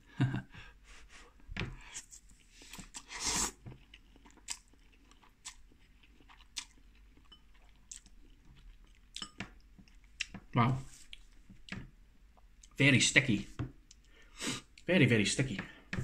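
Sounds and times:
noodle slurp: 2.7s - 3.6s
chewing with wet mouth clicks: 3.7s - 10.4s, 13.8s - 14.8s.

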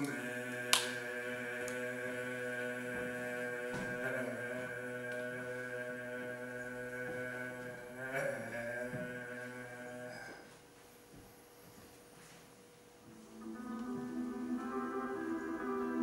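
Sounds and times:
chant-like drone: 0.0s - 10.5s.

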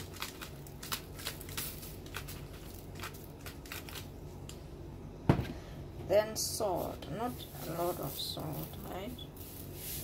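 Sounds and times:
spice shaker rattling: 0.0s - 4.1s, 7.3s - 10.0s.

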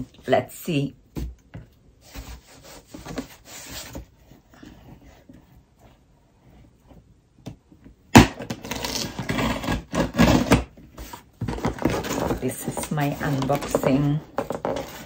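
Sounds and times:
scissors slitting tape and cardboard: 8.1s - 10.7s.

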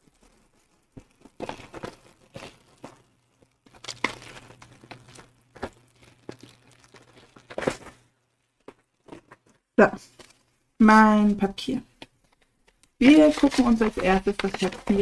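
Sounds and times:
plastic film and paper rustling: 0.0s - 15.0s.

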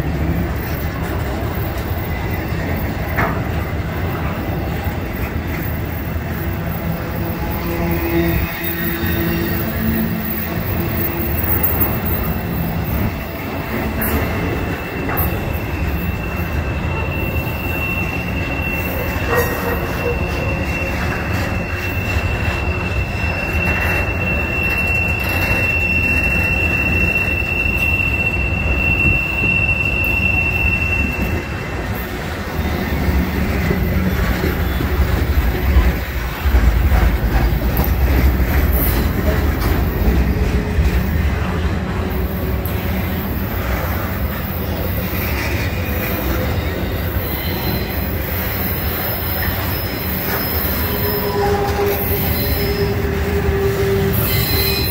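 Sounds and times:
freight train rumbling past: 0.0s - 54.9s
high wheel squeal: 0.1s - 54.9s.

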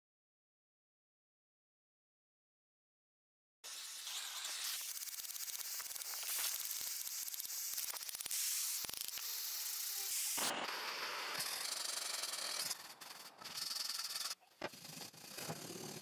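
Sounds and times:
scrubbing metal with abrasive pad: 9.5s - 16.0s.

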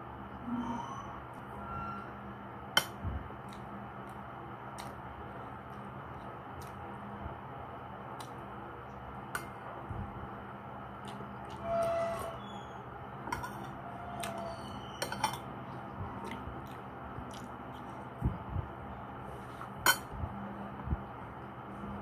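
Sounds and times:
low hum: 0.0s - 22.0s
metal spoon clinking against bowls: 13.3s - 14.3s, 15.0s - 15.4s, 19.8s - 20.1s.

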